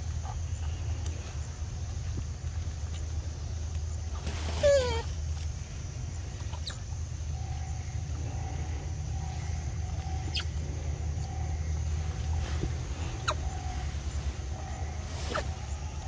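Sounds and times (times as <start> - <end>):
steady low rumble: 5.1 - 16.0.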